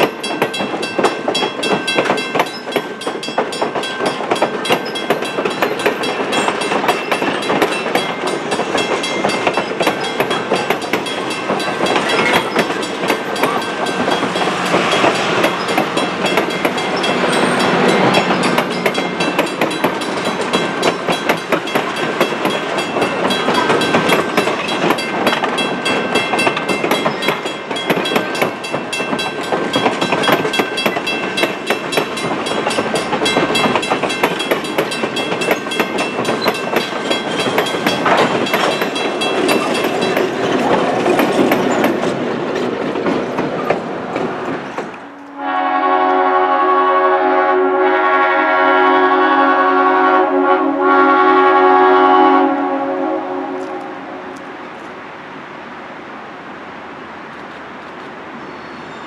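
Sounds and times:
train wheels clicking over rail joints: 0.0s - 45.4s
rumble of train running gear: 0.0s - 46.3s.

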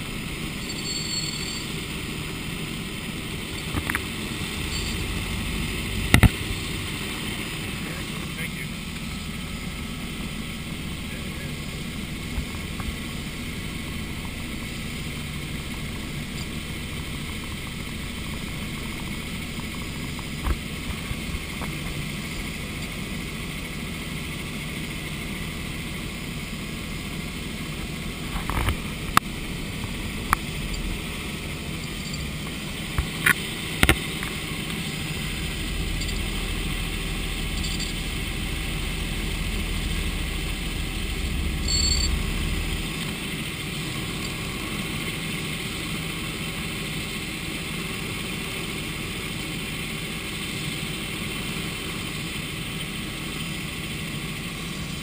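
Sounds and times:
helicopter engine and rotor drone: 0.0s - 55.0s
deep low rumble: 2.9s - 8.2s, 27.2s - 44.8s.

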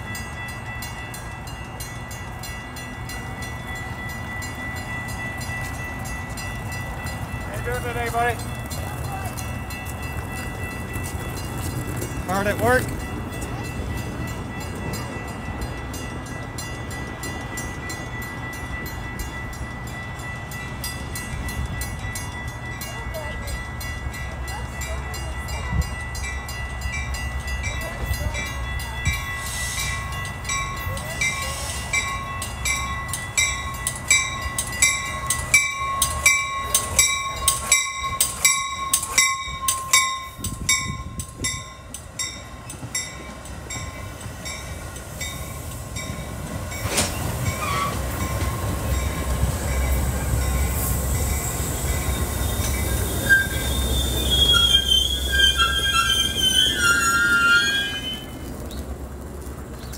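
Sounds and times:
train wheels rumbling on rails: 0.0s - 59.9s
train brakes squealing: 29.1s - 30.2s, 31.2s - 32.3s, 46.7s - 48.7s, 49.5s - 58.5s.

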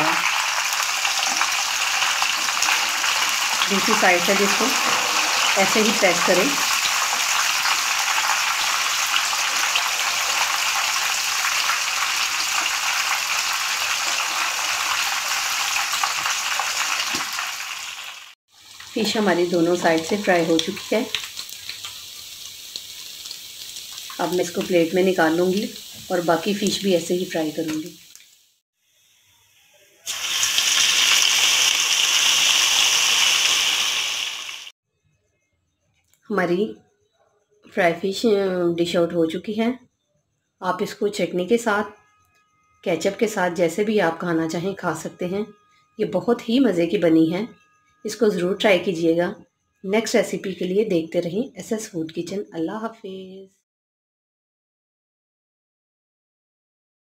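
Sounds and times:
fish deep-frying in oil: 0.0s - 29.0s, 30.0s - 34.7s.

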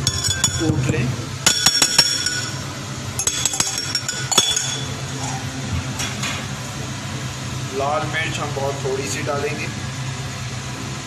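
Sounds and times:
pestle clinking in glass mortar: 0.0s - 2.6s, 3.2s - 5.0s
steady low hum: 0.0s - 11.0s.

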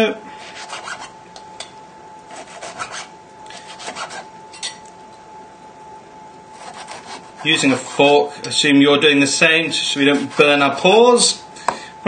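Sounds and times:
knife sawing through meat: 0.4s - 1.1s, 2.3s - 4.3s, 6.5s - 8.2s, 10.0s - 10.7s
knife scraping plastic board: 2.3s - 4.3s, 6.6s - 8.0s.

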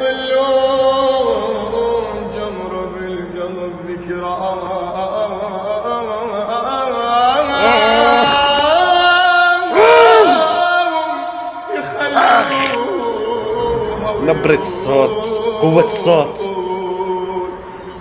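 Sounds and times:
man singing long note: 7.2s - 17.6s.

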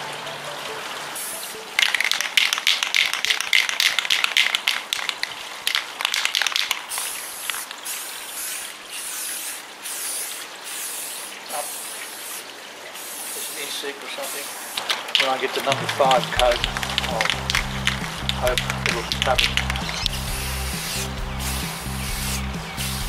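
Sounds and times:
short hissing sprays: 1.2s - 2.1s, 6.8s - 15.4s, 16.9s - 23.0s
spray can rattling: 1.2s - 23.0s.

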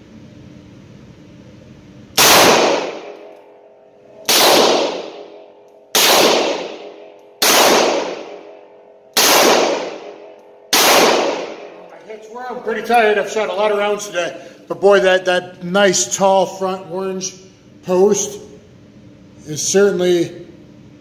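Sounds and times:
revolver shots echoing indoors: 0.6s - 14.1s.

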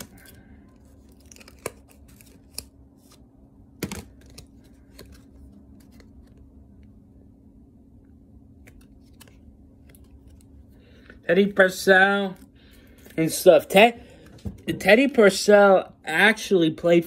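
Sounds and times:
plastic sleeve crinkling and clicking: 0.0s - 2.8s.

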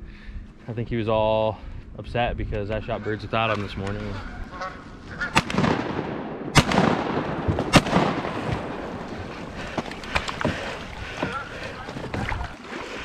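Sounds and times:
shotgun shots with echo: 5.3s - 8.8s.

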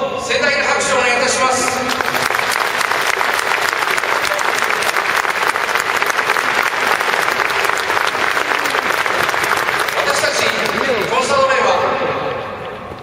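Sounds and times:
stadium crowd applauding: 1.1s - 11.6s.

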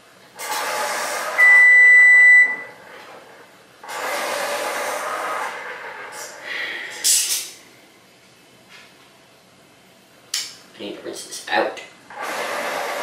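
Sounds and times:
loud electronic beep: 1.4s - 2.7s.

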